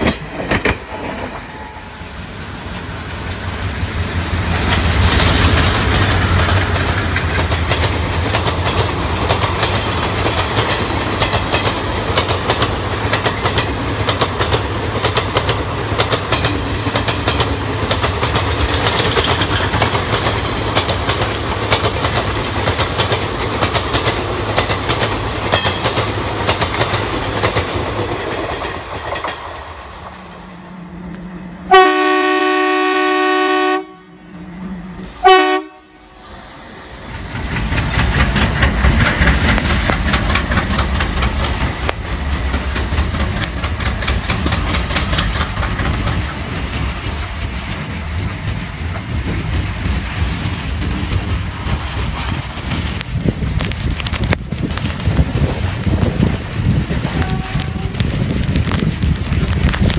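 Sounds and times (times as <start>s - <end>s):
train wheels clattering over rail joints: 0.0s - 1.5s, 4.0s - 30.4s, 37.0s - 59.9s
locomotive horn: 31.6s - 36.2s, 57.0s - 58.2s.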